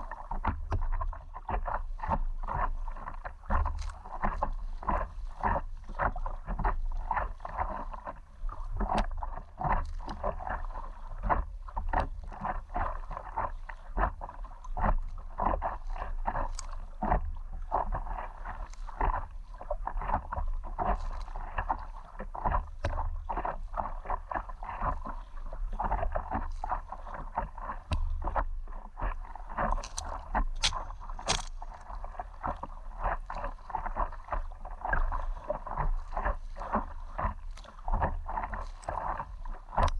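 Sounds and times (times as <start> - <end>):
low steady rumble: 0.0 - 39.9
water splashing around paddleboard: 0.0 - 39.9.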